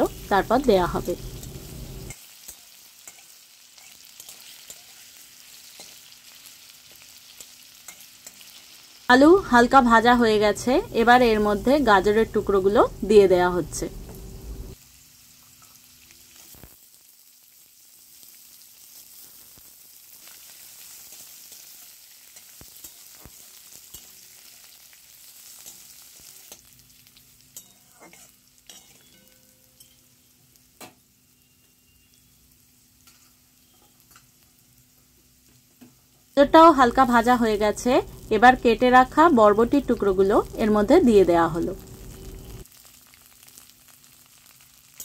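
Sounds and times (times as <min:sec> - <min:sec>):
vegetables sizzling in oil: 0:00.0 - 0:45.0
metal spatula scraping pan: 0:27.6 - 0:30.0.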